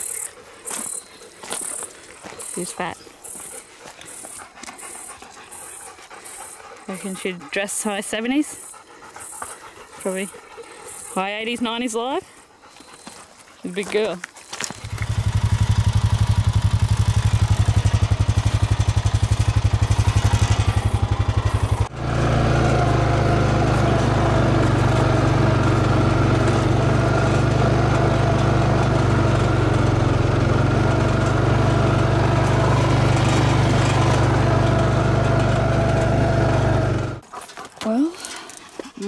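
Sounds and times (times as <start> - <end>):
quad bike engine running: 14.7 - 37.2.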